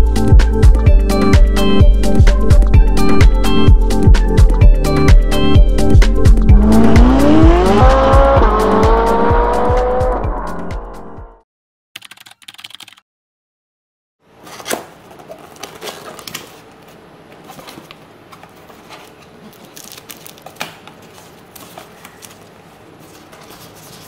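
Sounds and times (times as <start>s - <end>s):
cardboard and paper rustling: 14.3s - 24.0s.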